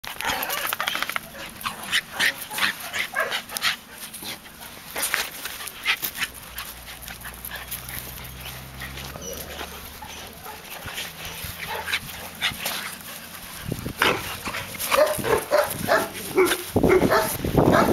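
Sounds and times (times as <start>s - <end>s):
small dog yipping and whining: 9.1s - 10.2s.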